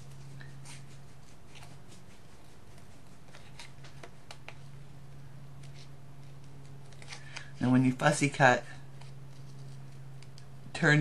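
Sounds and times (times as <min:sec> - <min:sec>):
steady low hum: 0:00.0 - 0:11.0
scissors snipping paper: 0:08.9 - 0:10.5.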